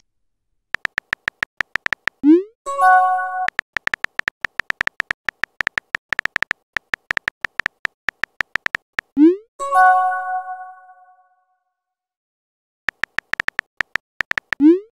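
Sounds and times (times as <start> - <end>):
electronic key clicks: 0.8 - 2.2, 3.4 - 9.2, 12.9 - 14.7.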